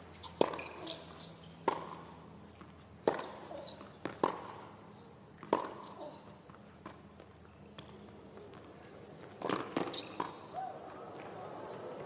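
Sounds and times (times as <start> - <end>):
racket striking tennis ball: 0.2 - 2.1, 3.0 - 4.8, 5.4 - 7.0, 9.4 - 10.5.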